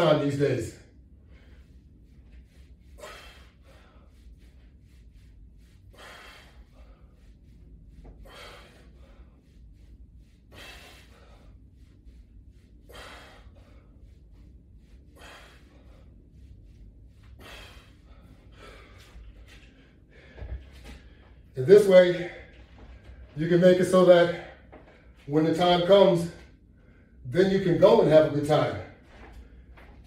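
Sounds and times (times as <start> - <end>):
man breathing hard: 0.9 - 23.4, 26.3 - 27.3.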